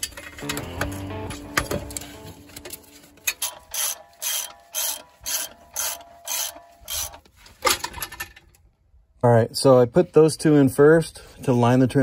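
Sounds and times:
ratchet strap ratcheting: 3.3s - 7.3s.

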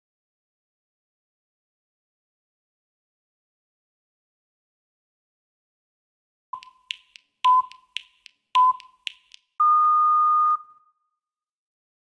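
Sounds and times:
interval timer beeps: 6.6s - 10.8s.

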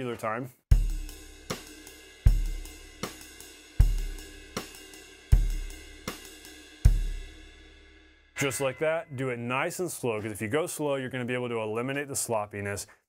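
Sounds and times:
cymbal timekeeping: 0.8s - 10.6s.

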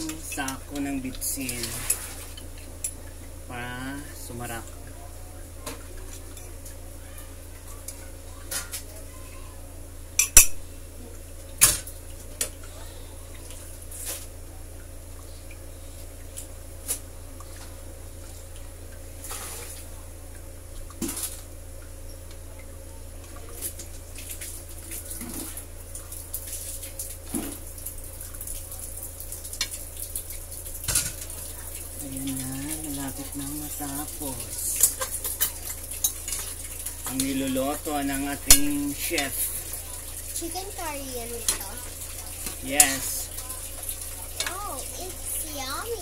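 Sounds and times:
steady low hum: 0.0s - 46.0s
curry simmering: 19.8s - 46.0s.

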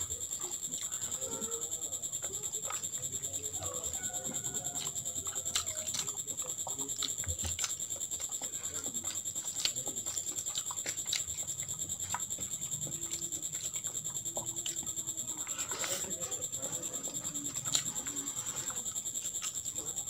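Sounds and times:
fingers squishing food: 0.0s - 20.0s.

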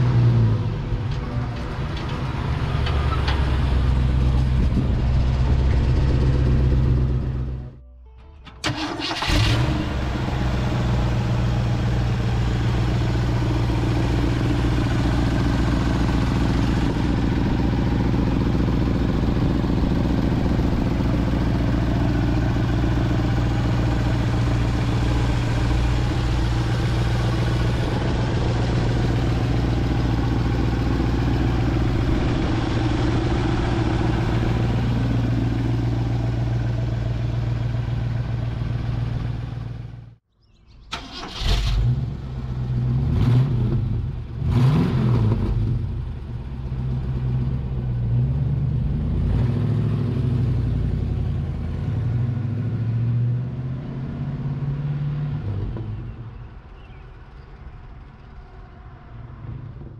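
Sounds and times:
engine idling: 8.5s - 40.2s.

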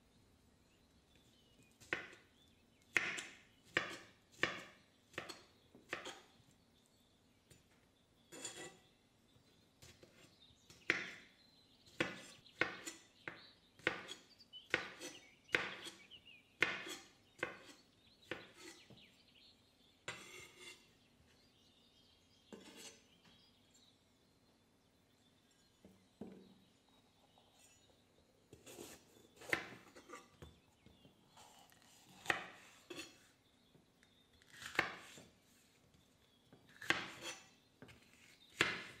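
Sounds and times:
knife chopping on wooden board: 1.8s - 2.2s, 2.9s - 6.3s, 9.8s - 11.2s, 11.9s - 16.0s, 16.6s - 19.0s, 20.1s - 20.8s, 28.5s - 30.5s, 32.1s - 33.1s, 34.5s - 35.3s, 36.7s - 39.0s.

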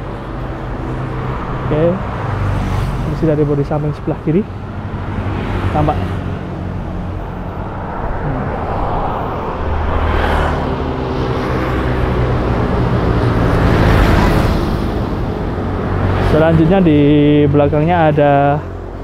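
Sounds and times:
vehicles passing with tyre noise: 0.0s - 19.0s.

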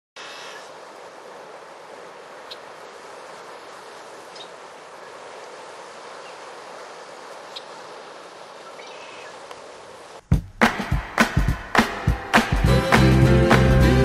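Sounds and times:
water rushing through ditch: 0.6s - 10.2s
music with strong beat: 10.3s - 14.0s.

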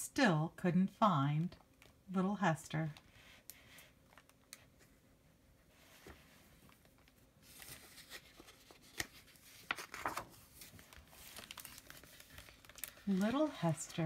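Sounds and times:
paper page rustling: 5.7s - 14.0s
paper page snapping: 8.8s - 10.3s.

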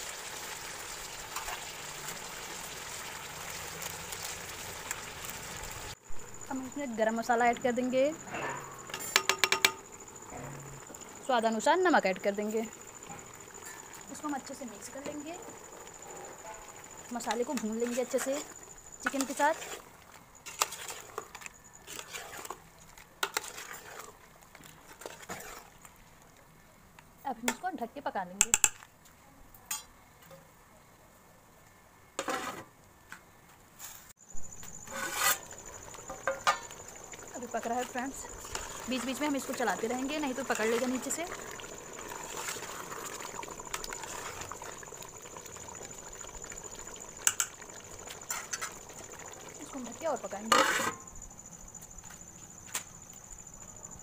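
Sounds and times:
chicken frying in pot: 0.0s - 27.8s, 34.2s - 51.6s
metal ladle scraping pot: 8.2s - 11.0s, 17.2s - 22.6s, 23.2s - 24.2s, 24.8s - 25.8s, 32.2s - 32.7s, 34.8s - 45.1s, 47.2s - 49.1s, 50.4s - 51.1s
ladle knocking against pot: 8.9s - 9.8s.

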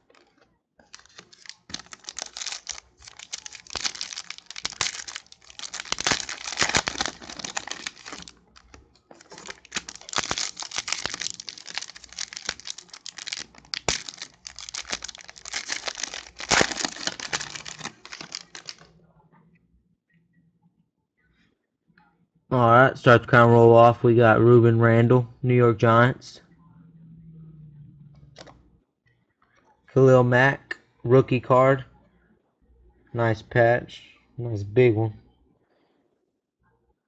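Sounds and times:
plastic foil wrapper crackling: 0.9s - 18.9s.

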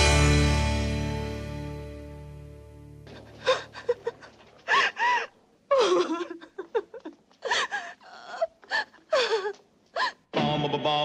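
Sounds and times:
woman crying and sobbing: 3.3s - 10.3s.

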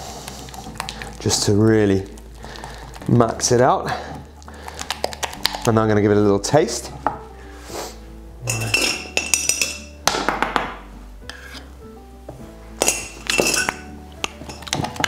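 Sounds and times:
background music with held notes: 0.0s - 15.0s
metal spoon scraping ceramic bowl: 11.2s - 11.7s.

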